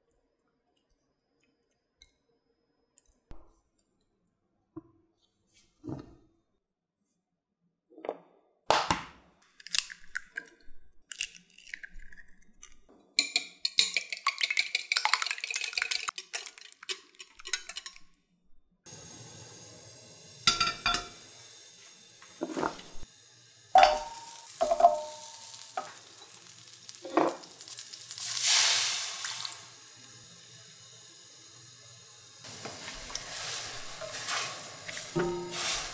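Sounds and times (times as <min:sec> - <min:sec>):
gas burner hissing: 0:18.9 - 0:35.9
metal pan clanking on grate: 0:20.5 - 0:21.2, 0:23.8 - 0:25.9, 0:34.0 - 0:35.9
water pouring into pan: 0:22.4 - 0:31.0, 0:32.4 - 0:35.9.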